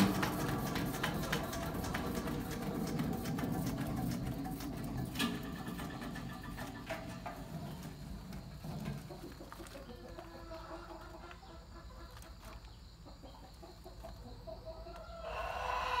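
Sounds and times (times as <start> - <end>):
chickens clucking: 0.0 - 16.0
chicken long loud call: 15.0 - 16.0.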